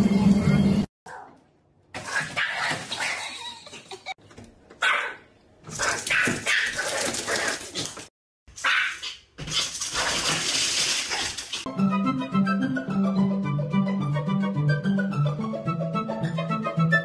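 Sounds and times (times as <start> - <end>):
small dog barking: 1.1 - 1.4, 4.8 - 5.2, 5.8 - 6.9, 8.6 - 9.1
dog rustling crinkly bag: 9.7 - 11.6.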